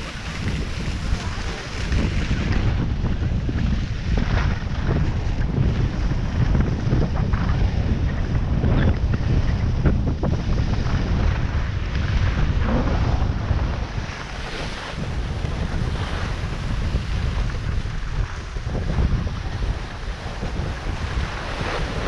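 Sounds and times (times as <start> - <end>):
skis sliding on packed snow: 0.0 - 4.0, 10.6 - 22.0
wind buffeting microphone: 0.0 - 22.0.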